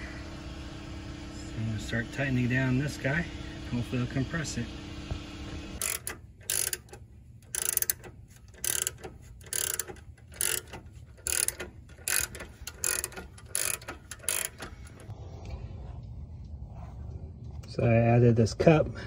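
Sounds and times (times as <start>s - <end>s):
ratcheting wrench clicking: 5.8s - 15.1s.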